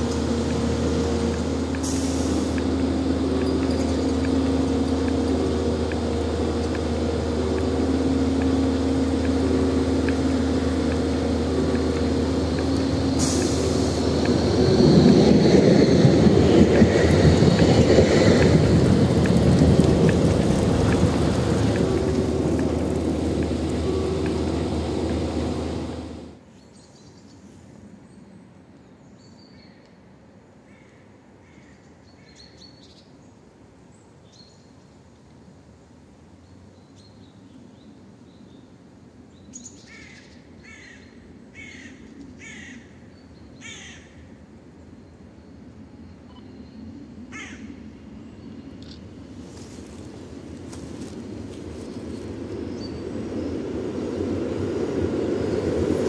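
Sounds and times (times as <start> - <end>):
tram running on track: 0.0 - 26.5, 41.2 - 56.0.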